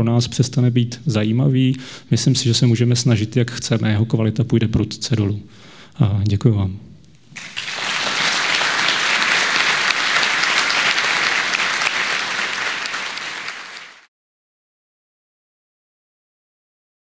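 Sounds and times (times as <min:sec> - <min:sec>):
audience applauding: 0:07.3 - 0:14.1.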